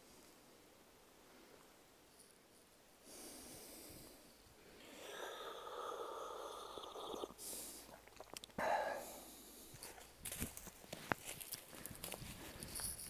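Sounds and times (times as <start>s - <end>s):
breath out: 3.1s - 10.0s
person slurping a drink: 4.9s - 8.5s.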